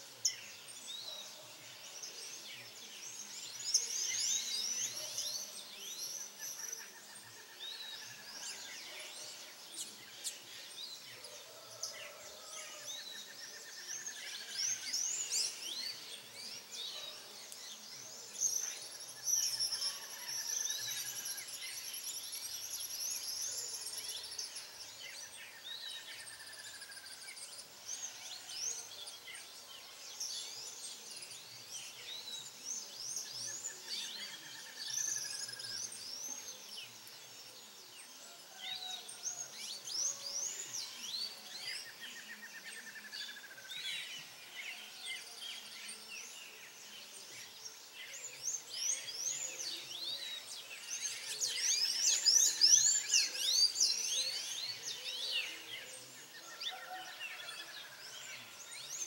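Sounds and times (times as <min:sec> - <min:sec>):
birds chirping and twittering: 0:00.0 - 0:59.0.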